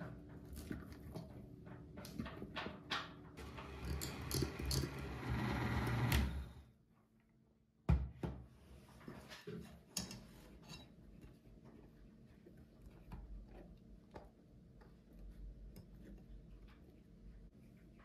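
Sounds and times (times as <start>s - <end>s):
electric hand mixer whirring: 3.4s - 6.6s.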